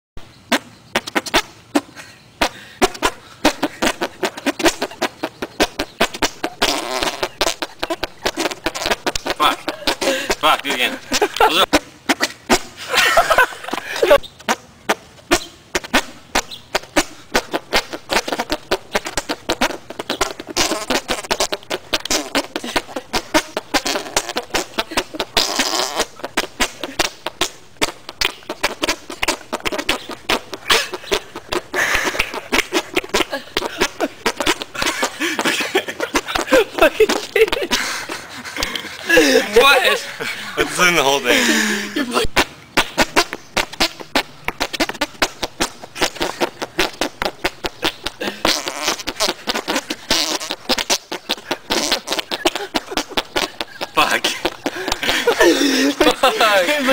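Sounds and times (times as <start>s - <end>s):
armpit fart pops: 0.5s - 13.6s, 14.4s - 37.8s, 42.3s - 56.3s.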